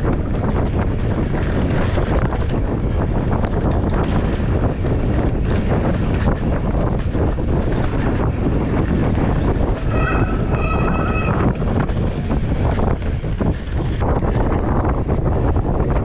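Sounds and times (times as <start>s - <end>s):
bike knocks and rattles: 0.0s - 16.0s
bike tyres on dirt trail: 0.0s - 16.0s
wind buffeting microphone: 0.0s - 16.0s
brief high-pitched tone: 9.9s - 11.6s.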